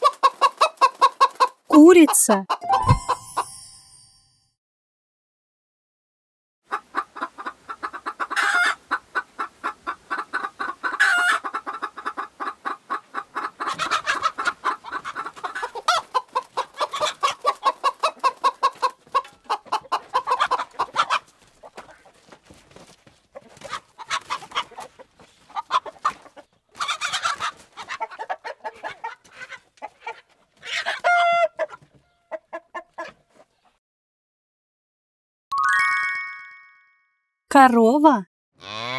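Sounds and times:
hens clucking: 0:00.0 - 0:02.8, 0:06.7 - 0:22.4, 0:23.2 - 0:33.7
hens squawking: 0:06.7 - 0:22.1, 0:23.4 - 0:33.2, 0:38.6 - 0:38.9.

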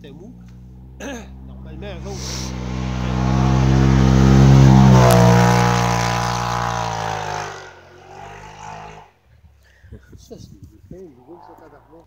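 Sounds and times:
off-road vehicle passing at speed: 0:00.0 - 0:09.2.

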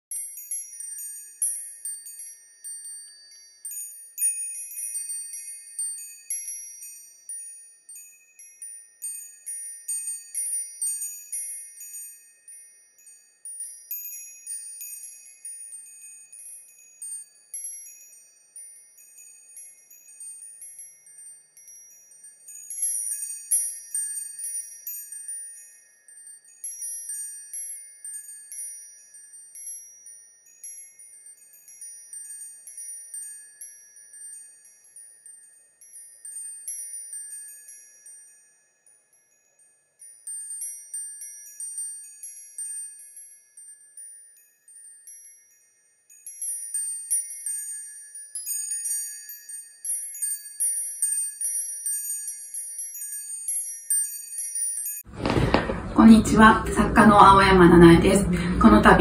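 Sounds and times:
delicate chimes tinkling: 0:00.1 - 0:59.0.

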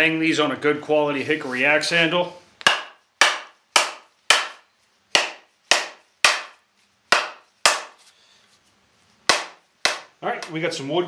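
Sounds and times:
mallet knocking on axe handle: 0:07.1 - 0:07.9, 0:09.3 - 0:10.5.

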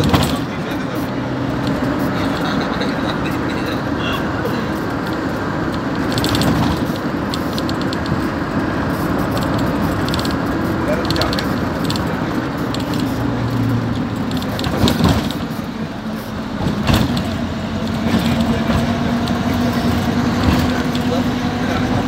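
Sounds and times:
engine drone: 0:00.0 - 0:22.0
road noise: 0:00.0 - 0:22.0
loose fittings rattling: 0:04.7 - 0:08.3.

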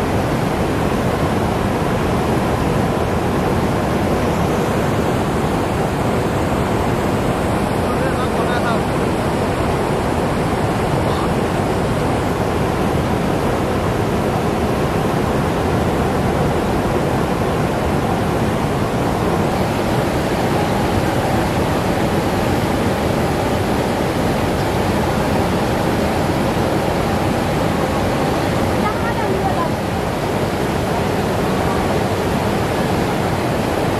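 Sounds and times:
river rushing over rocks: 0:00.0 - 0:33.9.

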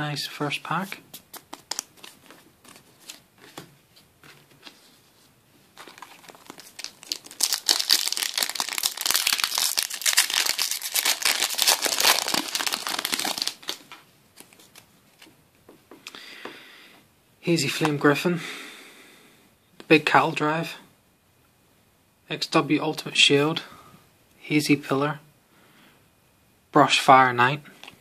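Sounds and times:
foil wrapper crinkling and tearing: 0:05.8 - 0:14.8.

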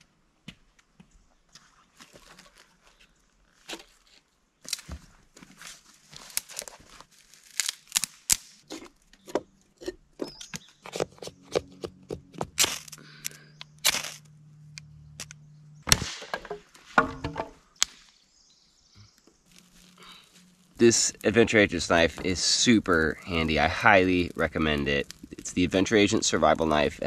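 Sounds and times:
kindling cracking as it is split: 0:02.0 - 0:09.2, 0:19.4 - 0:26.8
knife shaving wood: 0:02.0 - 0:09.3, 0:19.5 - 0:26.2
faint low hum: 0:11.4 - 0:15.9.

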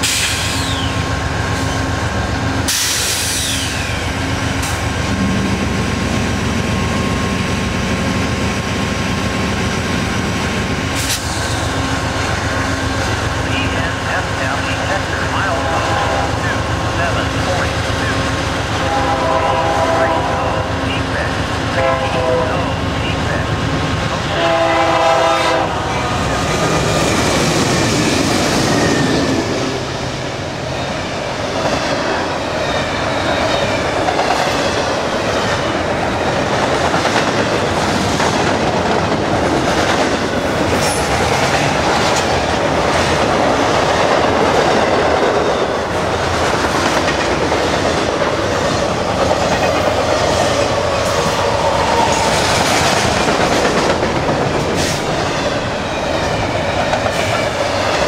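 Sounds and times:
locomotive horn: 0:15.5 - 0:16.7, 0:18.7 - 0:23.5, 0:24.2 - 0:26.8.

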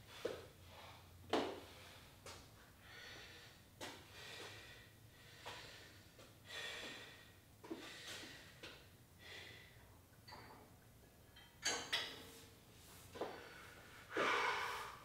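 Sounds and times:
person breathing heavily: 0:02.8 - 0:08.6, 0:09.2 - 0:09.8, 0:13.2 - 0:15.0.

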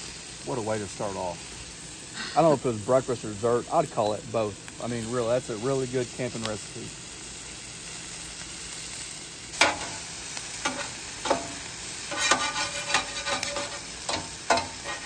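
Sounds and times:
potatoes and onions sizzling: 0:00.0 - 0:15.0
metal spatula striking griddle: 0:09.6 - 0:10.0, 0:10.6 - 0:15.0
spatula scraping and clacking: 0:10.6 - 0:15.0.

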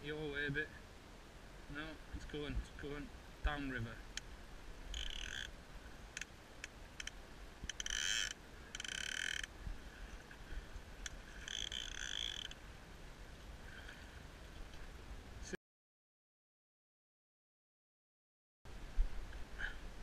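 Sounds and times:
fly reel ratchet buzzing: 0:04.9 - 0:05.5, 0:07.7 - 0:09.5, 0:11.5 - 0:12.6.

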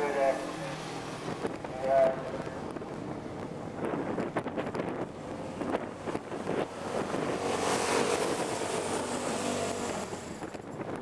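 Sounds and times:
racing car engine passing: 0:04.8 - 0:10.6.

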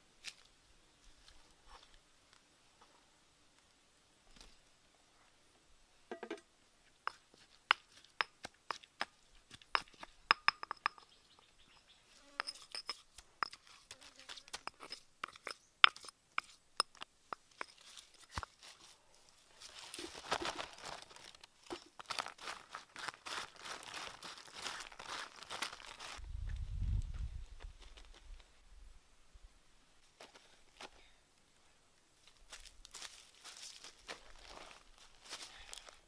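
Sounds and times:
hand mixing crackly rustle: 0:17.6 - 0:26.2.

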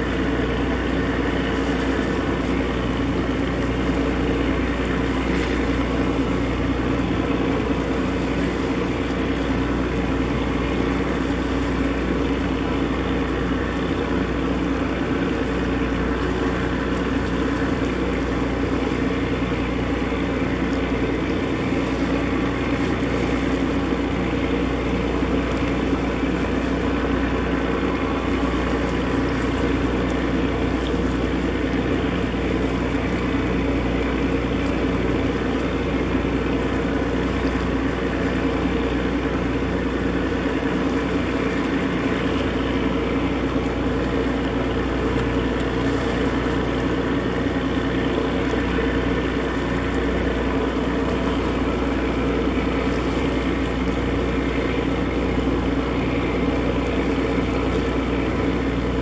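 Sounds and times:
ship diesel engine droning: 0:00.0 - 0:59.0.

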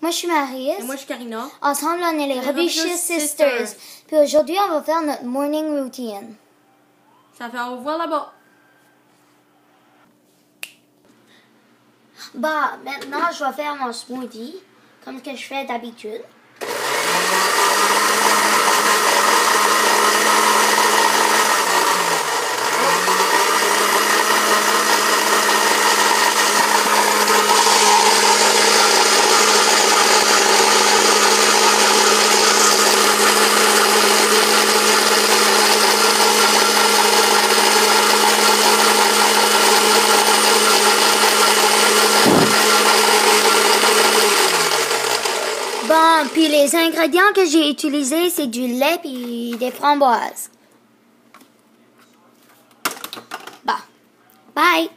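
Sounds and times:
blender running: 0:16.6 - 0:46.8.

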